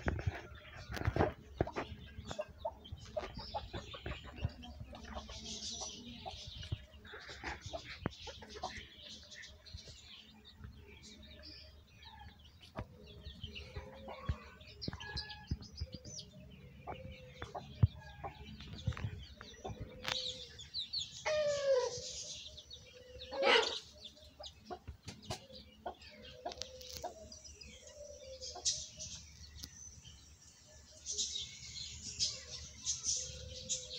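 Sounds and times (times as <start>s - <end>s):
chickens clucking: 0.0s - 29.7s
small birds chirping faintly: 0.0s - 33.9s
chicken squawk: 23.3s - 23.9s.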